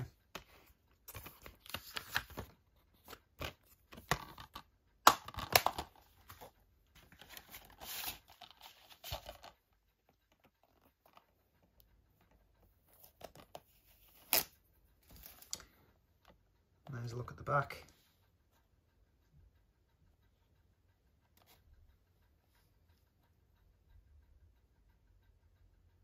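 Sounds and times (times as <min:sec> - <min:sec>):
plastic case clicking and rustling: 0:01.1 - 0:09.6.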